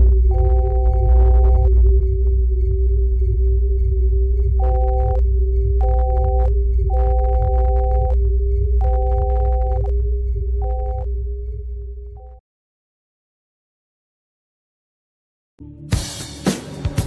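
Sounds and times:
steady hum: 0:00.0 - 0:12.2
deep electronic drone: 0:00.0 - 0:12.4
two-note electronic beep: 0:04.6 - 0:05.2, 0:05.8 - 0:08.2, 0:08.8 - 0:09.9, 0:10.6 - 0:11.1.

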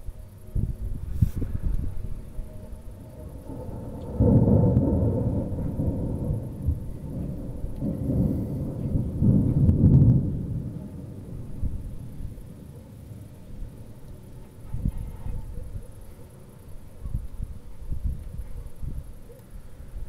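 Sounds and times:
rolling thunder: 0:00.3 - 0:16.0.

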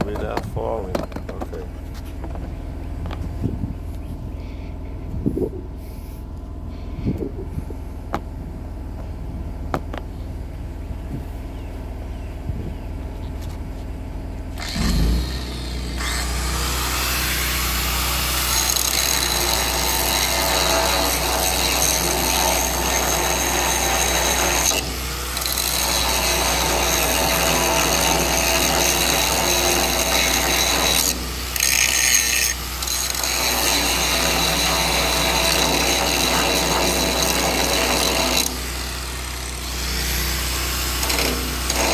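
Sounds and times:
steady low hum: 0:00.0 - 0:41.9
angle grinder grinding steel: 0:14.6 - 0:41.9.

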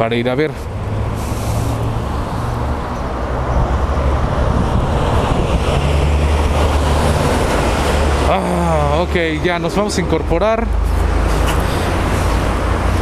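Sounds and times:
low rumble of city traffic: 0:00.0 - 0:13.0
wind rushing over microphone: 0:00.7 - 0:08.3.

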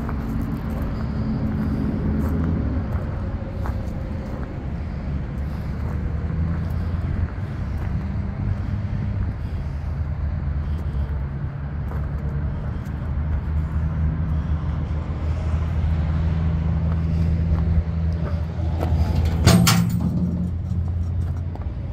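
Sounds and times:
low engine-like hum: 0:00.0 - 0:21.9
metal toolbox lid clatter: 0:19.1 - 0:20.6.

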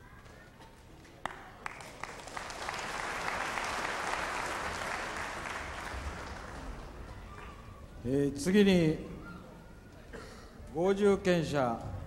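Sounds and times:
audience applauding: 0:01.2 - 0:07.4.

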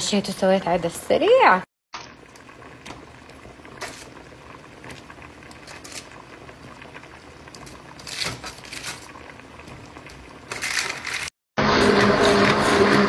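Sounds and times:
soup boiling and bubbling: 0:02.0 - 0:13.0.

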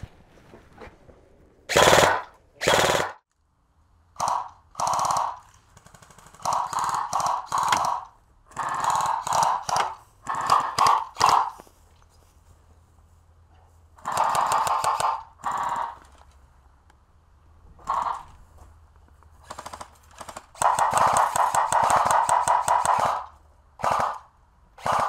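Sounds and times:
automatic gunfire sound effect: 0:01.7 - 0:03.2, 0:04.2 - 0:11.6, 0:14.0 - 0:16.0, 0:17.8 - 0:18.3, 0:19.4 - 0:25.0.

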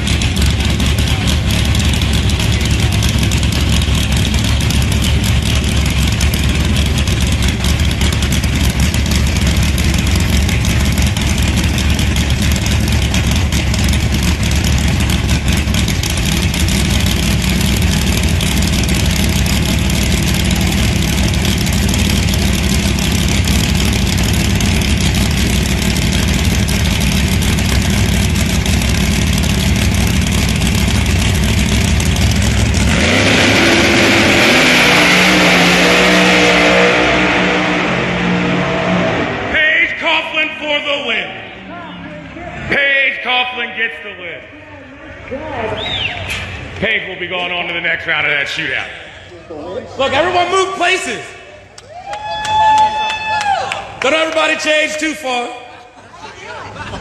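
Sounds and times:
race car engine idling loudly: 0:00.0 - 0:42.8.

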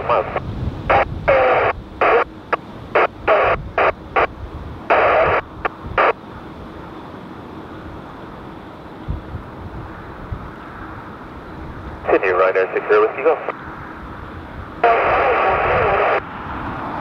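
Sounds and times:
radio speech transmissions: 0:00.0 - 0:06.2, 0:12.0 - 0:13.6, 0:14.8 - 0:16.3
low wind rumble: 0:00.0 - 0:17.0.

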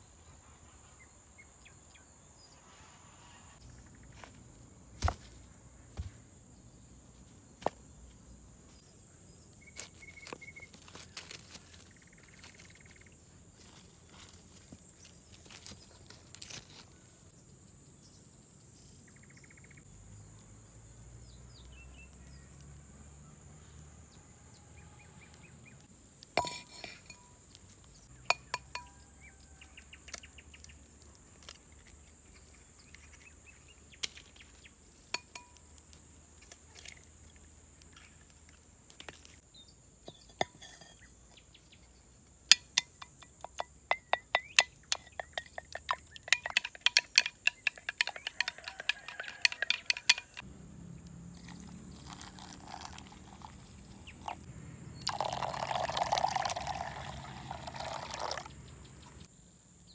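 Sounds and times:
wooden spoon clinking in clay pot: 0:26.4 - 0:27.5, 0:28.3 - 0:29.0, 0:35.1 - 0:35.7, 0:40.1 - 0:41.3, 0:42.5 - 0:50.4.

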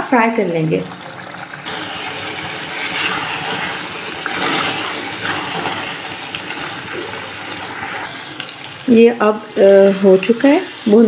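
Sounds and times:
curry sizzling and bubbling: 0:00.0 - 0:11.0
spatula stirring pot: 0:01.0 - 0:11.0.

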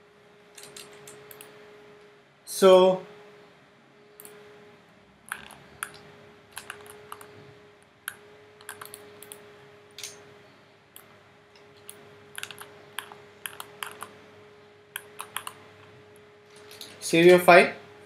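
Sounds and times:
faint steady hum: 0:00.0 - 0:18.0
keyboard and mouse clicking: 0:05.3 - 0:07.4, 0:08.1 - 0:09.4, 0:11.8 - 0:14.1, 0:15.0 - 0:15.6.

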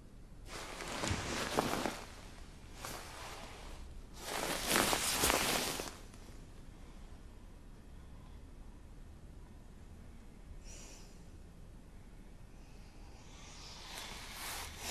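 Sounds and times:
bedding rustling: 0:00.5 - 0:06.2.

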